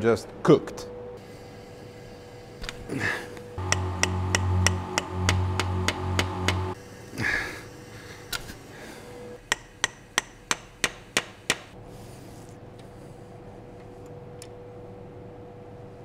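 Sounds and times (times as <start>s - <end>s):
steady hum with pulsing low note: 3.4s - 7.4s.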